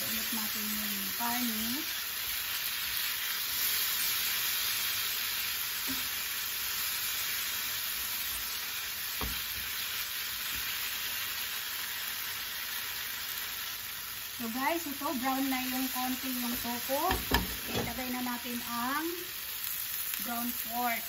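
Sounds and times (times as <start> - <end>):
tofu sizzling in oil: 0.0 - 21.0
spatula stirring in pan: 15.6 - 18.2.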